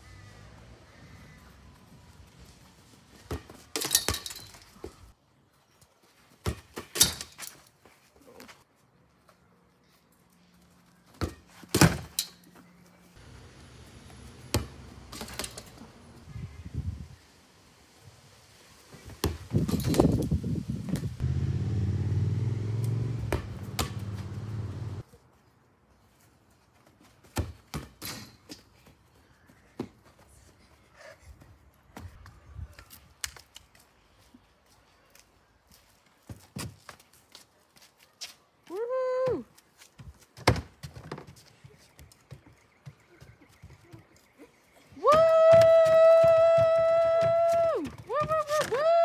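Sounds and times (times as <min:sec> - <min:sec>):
ball rattling goal net: 0:03.3 - 0:04.7, 0:14.6 - 0:15.8
low engine-like hum: 0:21.2 - 0:25.0.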